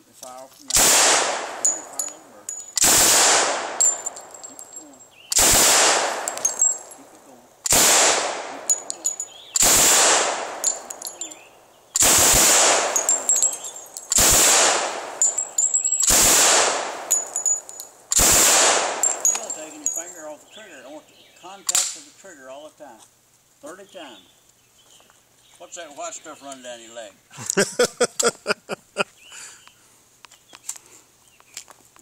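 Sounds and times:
light metallic clinks: 1.4 - 2.8, 3.7 - 5.4, 6.0 - 7.6, 8.4 - 9.6, 10.4 - 11.8, 12.8 - 16.2, 16.8 - 18.2, 18.8 - 20.8
submachine gun bursts: 2.8 - 3.7, 5.3 - 6.6, 7.7 - 11.2, 12.0 - 13.4, 14.1 - 15.3, 16.0 - 17.2, 18.1 - 19.2.

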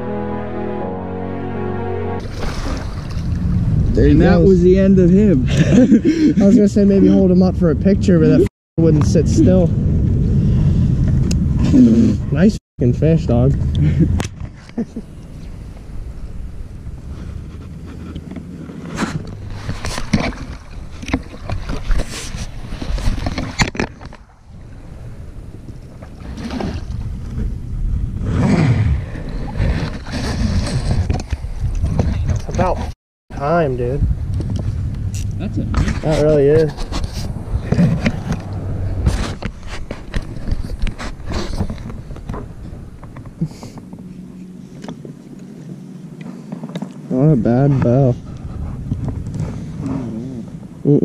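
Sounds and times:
creek water splashing: 1.6 - 3.6
low wind rumble: 2.2 - 50.9
steady low rumble: 33.3 - 41.0.

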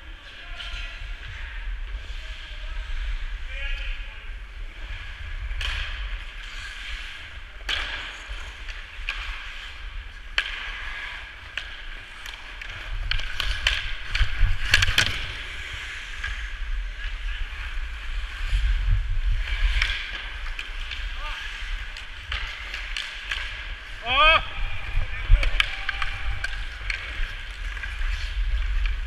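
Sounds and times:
skates scraping on ice: 0.0 - 29.0
hockey sticks and puck clacking: 0.2 - 29.0
low rumble: 15.3 - 29.0.

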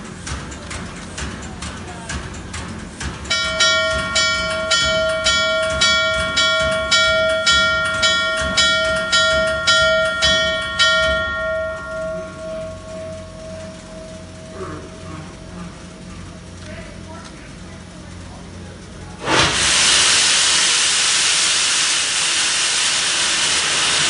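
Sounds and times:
locomotive bell ringing: 3.2 - 18.4.

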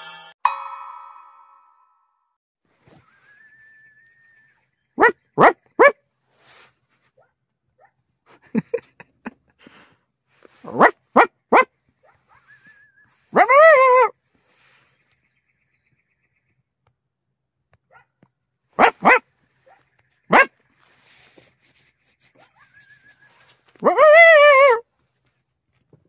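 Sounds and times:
coyote yipping and barking: 3.0 - 6.0, 10.5 - 14.2, 17.9 - 18.2, 18.8 - 21.3, 22.2 - 24.8
coyote howling: 12.4 - 14.1, 22.6 - 24.8.

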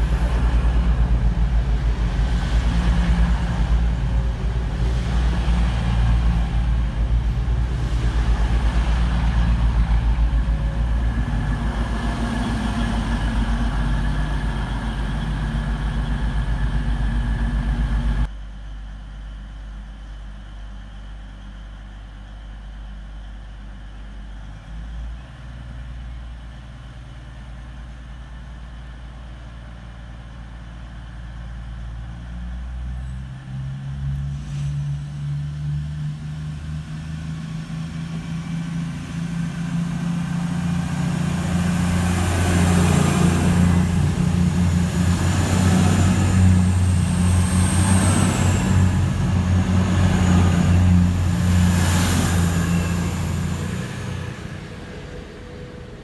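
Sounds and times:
low rumble: 0.0 - 18.4
train diesel engines running: 0.0 - 56.0.

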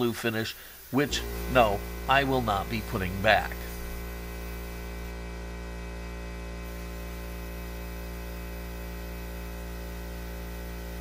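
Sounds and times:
faint hiss: 0.0 - 5.0
steady hum: 0.8 - 11.0.

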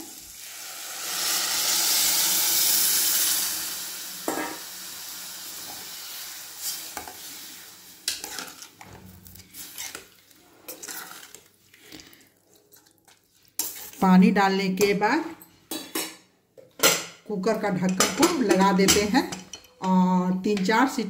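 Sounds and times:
water hissing in hot pot: 0.0 - 8.2
spoon stirring and scraping pot: 6.6 - 14.2.

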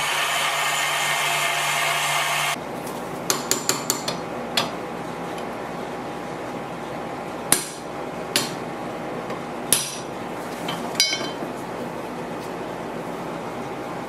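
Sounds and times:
hammer striking metal: 9.7 - 10.1.

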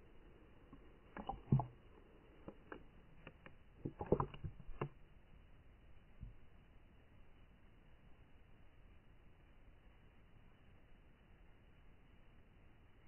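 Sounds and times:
muffled underwater clicks and knocks: 0.7 - 5.1.

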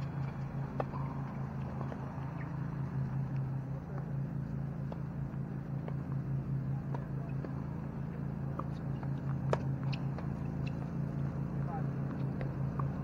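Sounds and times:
low pulsing hum: 0.0 - 13.0
tennis ball struck by racket: 8.6 - 10.8.

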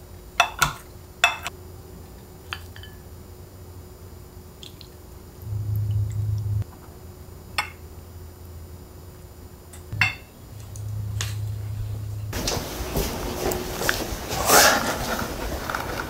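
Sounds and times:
kitchenware clinking on ceramic dishes: 0.4 - 1.5, 9.9 - 10.3
low hum: 5.1 - 14.3.

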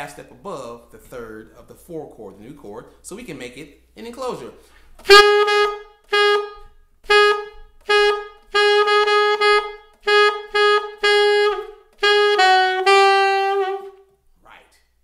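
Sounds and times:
alto saxophone jazz line: 5.0 - 14.2.

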